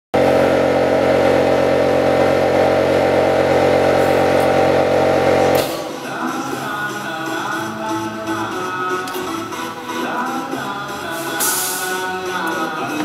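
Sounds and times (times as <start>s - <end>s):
loud steady mechanical hum: 0.1s - 13.0s
music: 5.6s - 13.0s.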